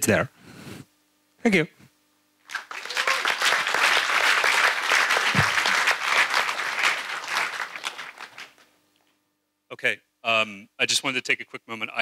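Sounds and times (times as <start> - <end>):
audience applauding: 2.5 - 8.7.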